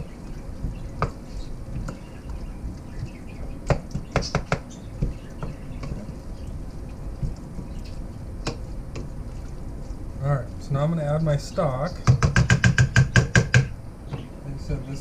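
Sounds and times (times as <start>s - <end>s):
wooden spoon knocking metal pot: 12.0s - 13.7s.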